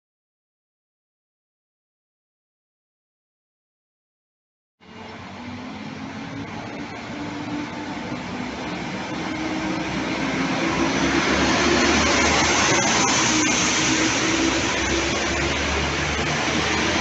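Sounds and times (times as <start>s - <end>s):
diesel train engine: 4.8s - 17.0s
train wheels on rails: 4.9s - 17.0s
train hiss: 8.8s - 16.8s.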